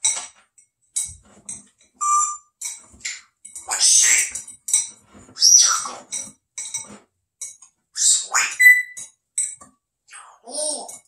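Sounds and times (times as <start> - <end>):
parrot whistle: 2.0 - 2.5, 8.0 - 9.0
parrot squawking and chirping: 3.0 - 4.4, 5.4 - 6.2, 8.0 - 9.0, 10.1 - 10.9.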